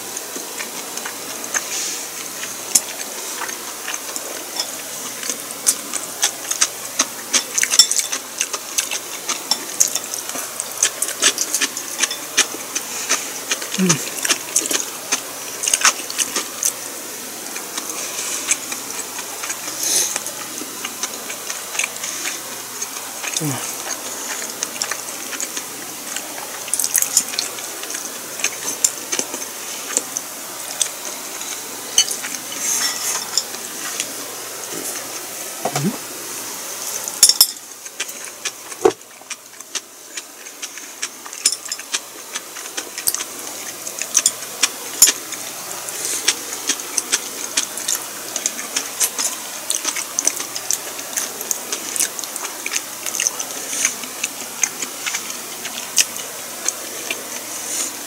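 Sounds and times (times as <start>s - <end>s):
wet chewing: 0.0s - 36.0s, 36.7s - 58.0s
steady hiss: 0.0s - 58.0s
utensils clicking on dishes: 0.1s - 16.8s, 30.8s - 34.1s, 37.2s - 57.8s.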